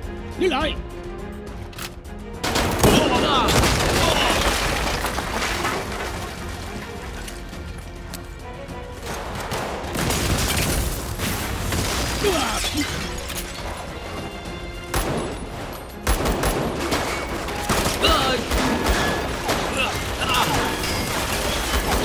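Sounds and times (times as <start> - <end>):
dramatic background music: 0.0 - 22.0
sharp gunshots: 2.4 - 4.4.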